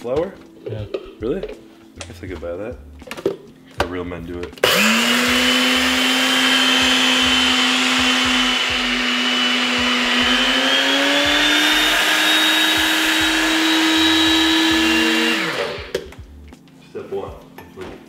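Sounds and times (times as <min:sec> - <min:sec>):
blender motor grinding oats: 0:04.6 - 0:16.1.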